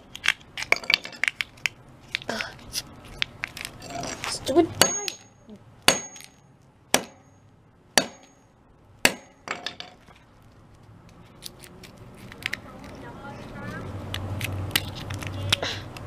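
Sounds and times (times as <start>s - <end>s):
hammer striking metal: 4.8s - 7.4s, 8.0s - 10.0s
high metallic ring: 7.1s - 8.6s.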